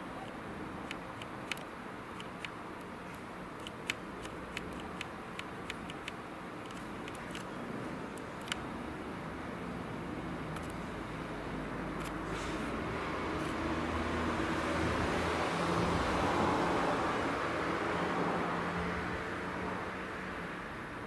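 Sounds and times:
low background hum and hiss: 0.0 - 16.0.

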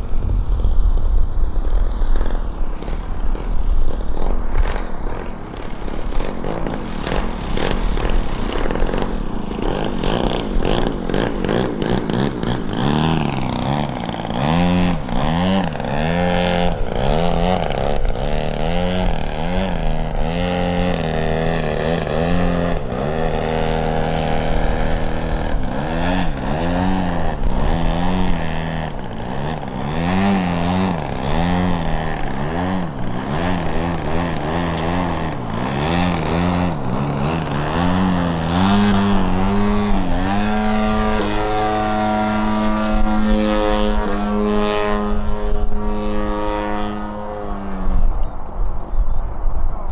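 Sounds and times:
model airplane motor revving: 0.4 - 48.5.

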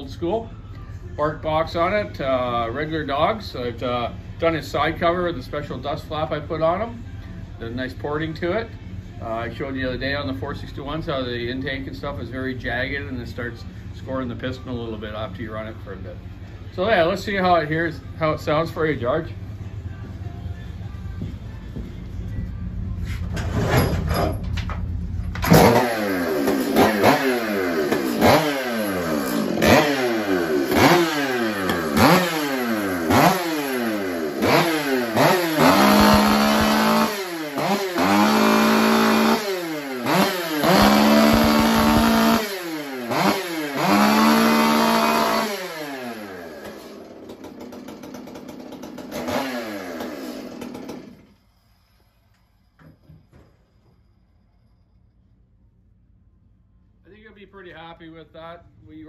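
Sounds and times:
chainsaw revving: 25.4 - 51.4.

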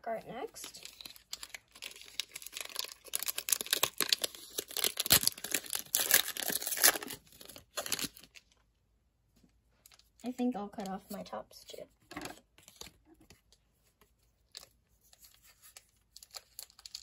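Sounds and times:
foil wrapper crinkling: 0.6 - 8.5, 14.5 - 17.0.

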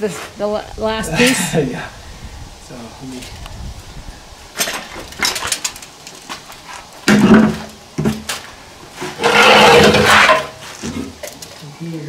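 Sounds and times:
wooden board scraping: 4.6 - 11.3.

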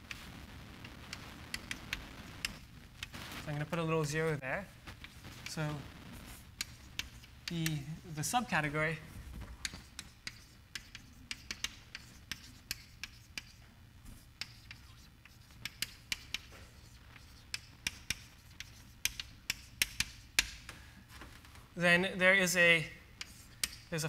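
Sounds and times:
chalk tapping on blackboard: 6.3 - 7.9, 9.6 - 20.7, 23.2 - 24.0.

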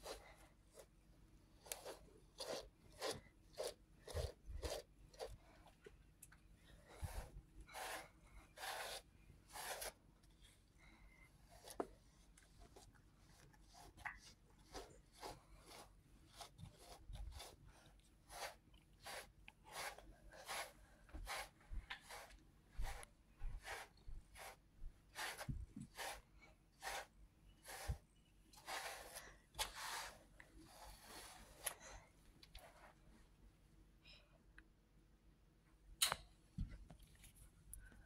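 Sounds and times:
brush strokes through fur: 0.0 - 5.6, 6.8 - 10.6, 11.4 - 31.8.

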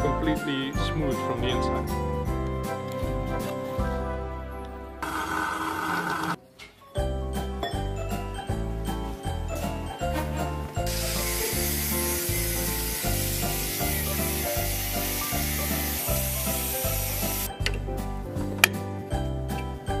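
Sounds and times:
background music with steady beat: 0.0 - 5.1, 6.4 - 20.0
angle grinder cutting steel pipe: 5.0 - 6.4.

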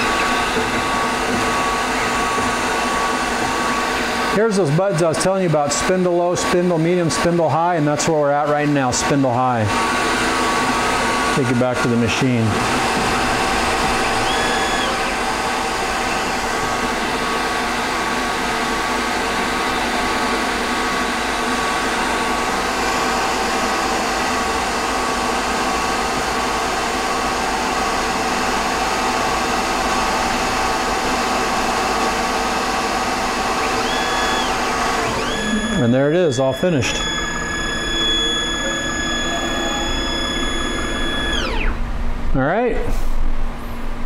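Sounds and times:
lathe motor whirring: 0.0 - 42.2
brief rising and falling tone: 12.7 - 16.7, 33.7 - 41.8.

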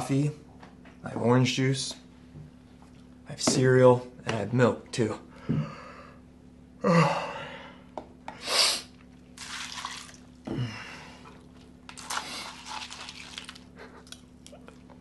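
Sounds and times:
man yawning with groan: 6.8 - 7.7.

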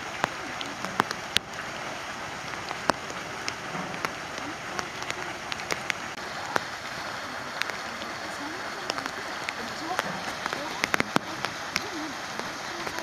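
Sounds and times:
light rain hissing: 0.0 - 13.0
raindrops tapping: 0.0 - 13.0.

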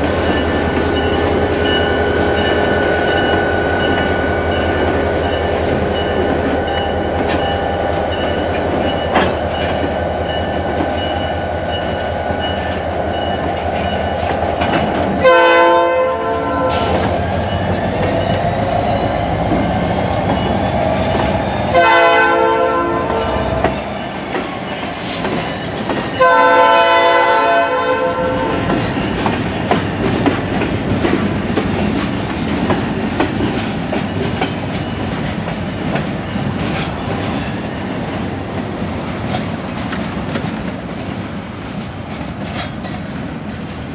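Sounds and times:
train wheels clattering on rails: 0.0 - 43.9
train horn blasts: 15.2 - 17.2, 21.7 - 23.6, 26.2 - 28.8.

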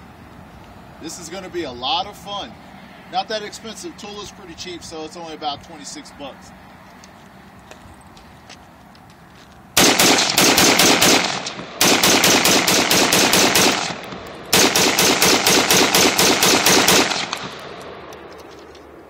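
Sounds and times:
rifle firing rapid shots: 9.8 - 18.0.

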